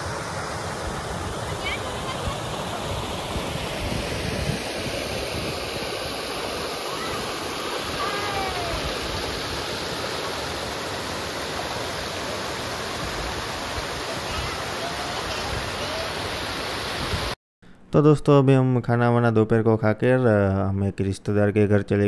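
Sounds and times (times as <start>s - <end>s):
waterfall rushing: 0.0s - 17.4s.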